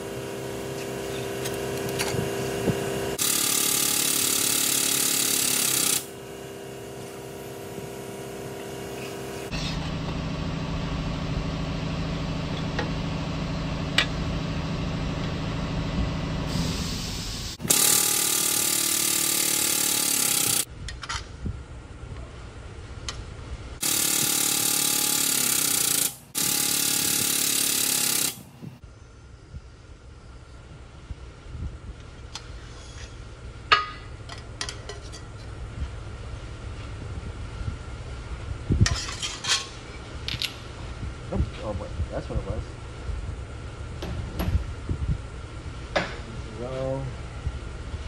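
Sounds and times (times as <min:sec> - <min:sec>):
hydraulic pump humming: 0:23.8 - 0:28.8.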